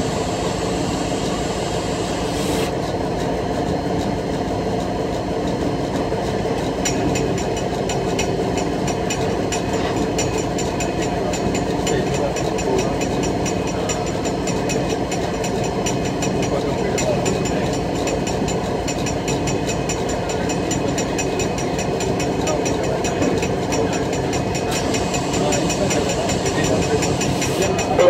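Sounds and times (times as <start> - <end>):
locomotive engine idling: 0.0 - 28.0
hiss: 0.9 - 2.7
rapid regular ticking: 4.8 - 28.0.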